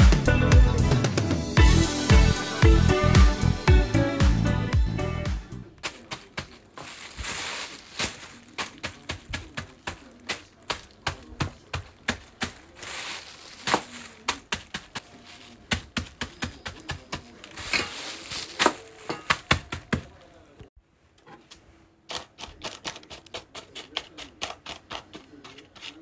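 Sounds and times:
rustling: 0:05.8 - 0:21.9.

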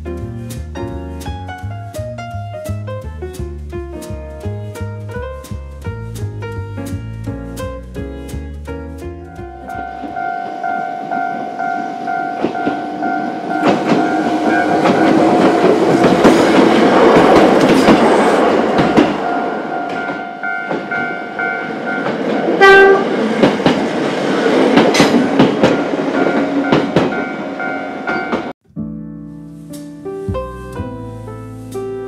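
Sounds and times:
crossing warning bell: 0:09.3 - 0:16.2, 0:19.2 - 0:23.1, 0:25.7 - 0:28.5
train horn toot: 0:09.6 - 0:16.2, 0:22.5 - 0:23.2
train wheels clattering over joints: 0:13.6 - 0:19.2, 0:23.3 - 0:27.2.

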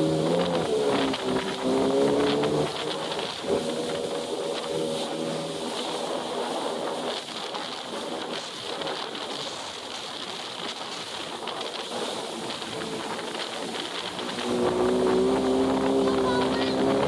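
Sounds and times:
water spray: 0:00.0 - 0:17.0
wind rushing: 0:11.9 - 0:17.0.

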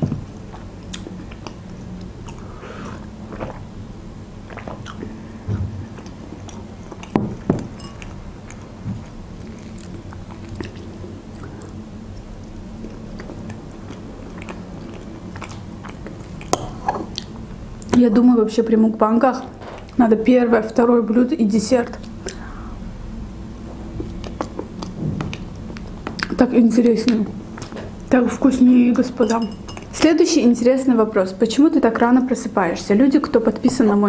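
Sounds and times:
chewing and mouth sounds: 0:00.5 - 0:03.7, 0:04.4 - 0:05.2, 0:05.9 - 0:18.0, 0:23.8 - 0:27.9.

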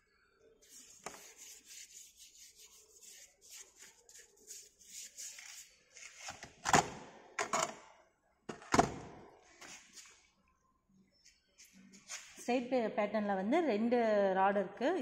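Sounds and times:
rubbing strokes with water: 0:00.6 - 0:05.9.

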